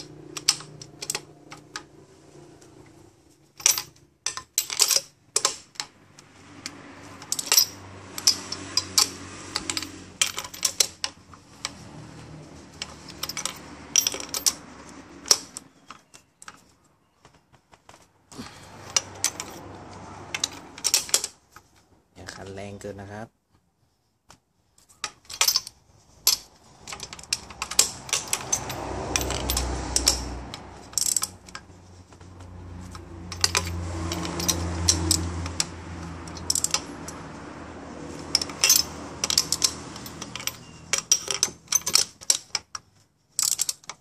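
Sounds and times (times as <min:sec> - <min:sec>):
ratchet wrench clicking: 0:26.2 - 0:31.6, 0:32.8 - 0:37.3, 0:38.1 - 0:42.6, 0:43.4 - 0:44.0.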